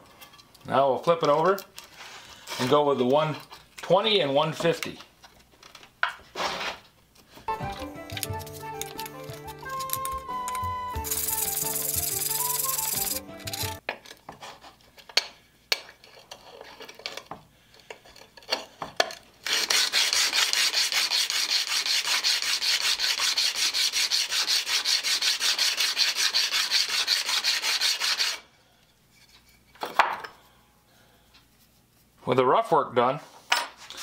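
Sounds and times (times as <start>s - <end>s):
background music: 7.5s - 13.8s
blade rasping on sandpaper: 11.0s - 13.8s, 19.4s - 28.4s.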